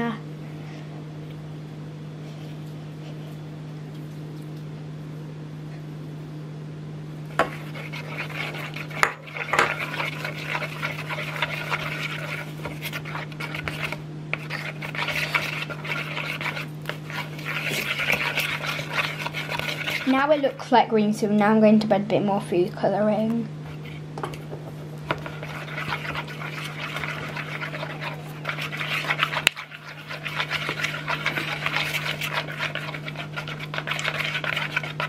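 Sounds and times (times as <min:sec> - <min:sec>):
steady low hum: 0:00.0 - 0:35.0
stick scraping plastic bowl: 0:07.4 - 0:20.6, 0:25.1 - 0:35.0.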